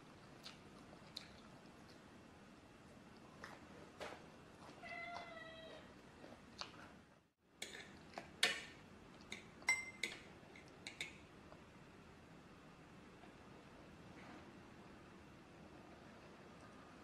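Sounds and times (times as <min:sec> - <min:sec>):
fork clinking on plate: 0:09.3 - 0:10.2.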